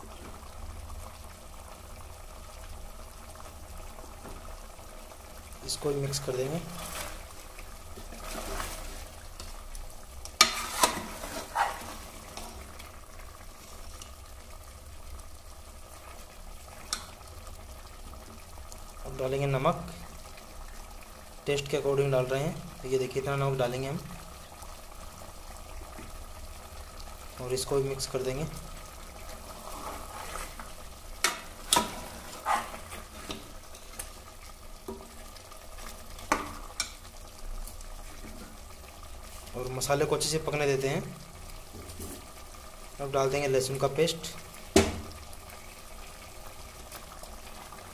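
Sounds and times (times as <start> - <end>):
meat sizzling in a pot: 0.0 - 47.9
ladle stirring in a pot: 6.2 - 14.2, 29.0 - 37.1.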